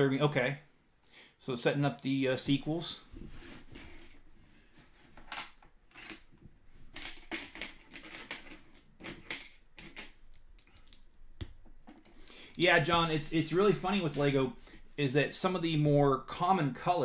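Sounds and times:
plastic pieces clicking and snapping: 7.2 - 11.6.

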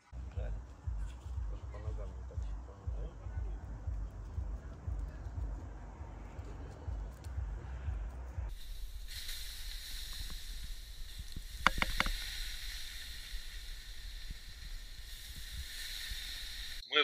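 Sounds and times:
sharp crackles: 8.5 - 16.8
water hissing into steam: 8.5 - 16.9.

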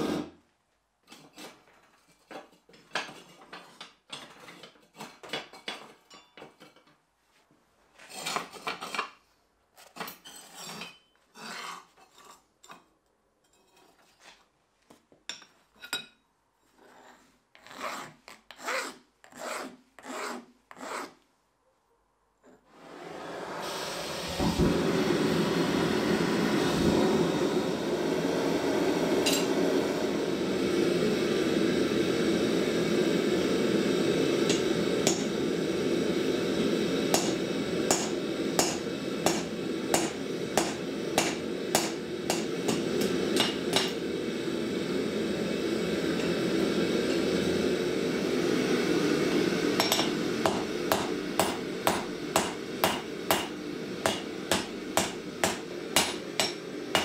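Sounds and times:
gas forge burning with rushing hiss: 0.0 - 0.4, 22.7 - 57.0
hand torch lighting forge: 0.0 - 0.4, 22.9 - 57.0
hammer striking steel on anvil: 34.5 - 35.3, 37.1 - 44.0, 49.8 - 57.0.

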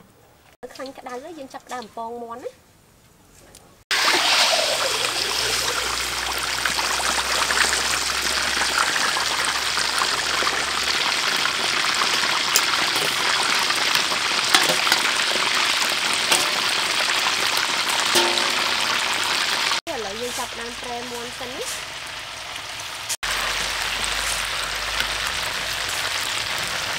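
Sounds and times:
chicken deep-frying in oil: 3.9 - 26.9.

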